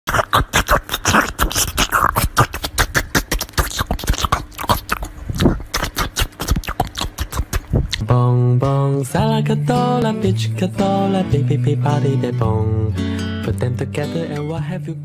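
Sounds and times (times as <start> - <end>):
dog chewing wet crunches: 0.2 - 8.0.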